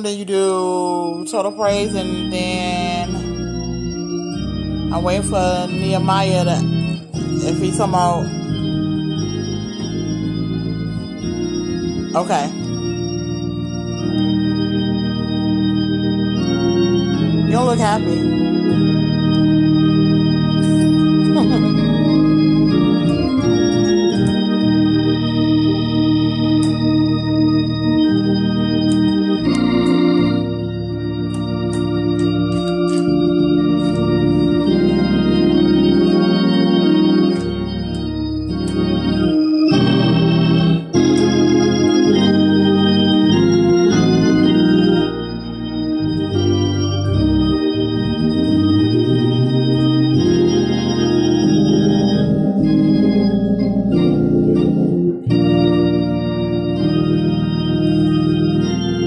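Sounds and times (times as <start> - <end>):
organ playing sustained chords: 0.0 - 59.0.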